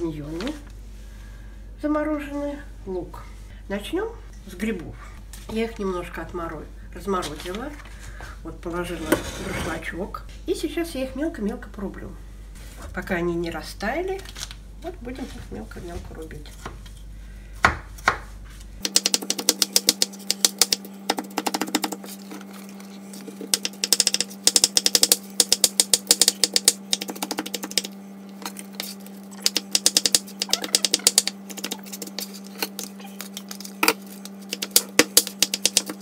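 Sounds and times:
knife chopping on plastic board: 17.6s - 22.1s, 23.3s - 27.9s, 28.5s - 32.9s, 33.5s - 36.0s.

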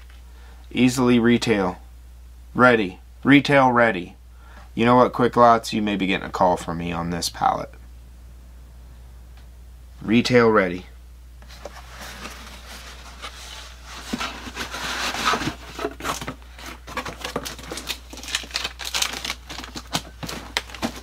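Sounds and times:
cardboard boxes rustling: 11.4s - 21.0s.

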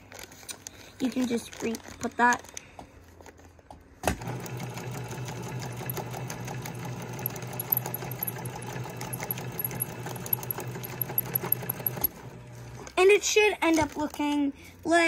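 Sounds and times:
sewing machine running: 4.1s - 12.8s.

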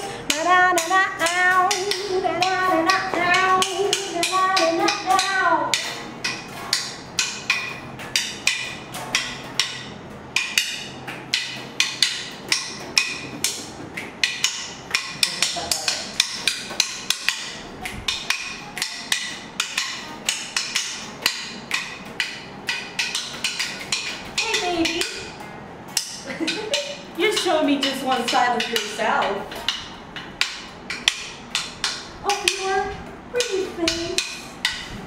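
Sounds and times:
drumsticks tapping a beat: 0.0s - 35.0s
person speaking: 32.2s - 34.4s.

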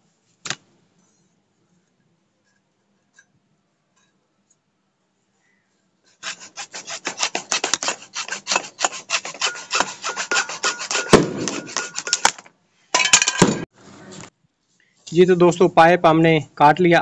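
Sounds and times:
hacksaw cutting plastic pipe: 6.2s - 12.4s
saw blade knock: 6.2s - 12.4s.

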